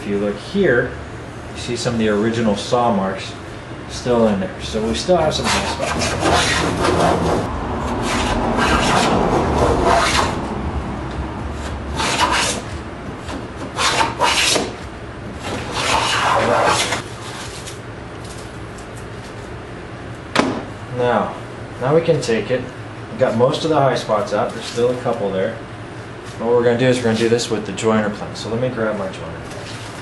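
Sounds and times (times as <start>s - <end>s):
hand plane scraping wood: 5.4s - 10.4s, 11.5s - 14.8s, 15.4s - 17.5s.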